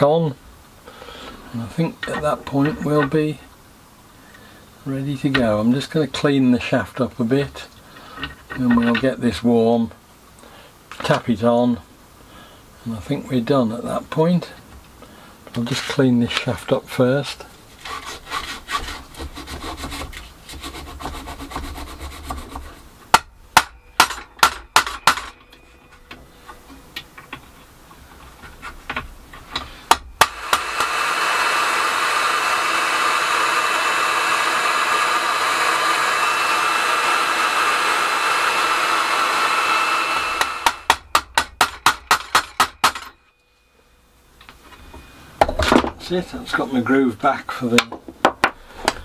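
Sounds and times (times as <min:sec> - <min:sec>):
hot air gun blowing: 0:29.9 - 0:41.1.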